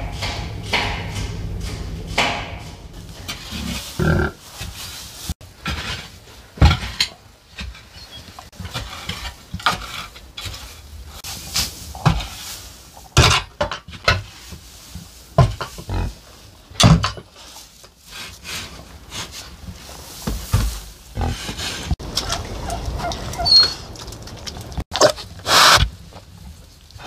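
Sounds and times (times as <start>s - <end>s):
animals knocking and thudding: 0.0s - 17.4s, 19.2s - 26.6s
rustling on straw: 2.8s - 13.2s, 13.9s - 24.4s.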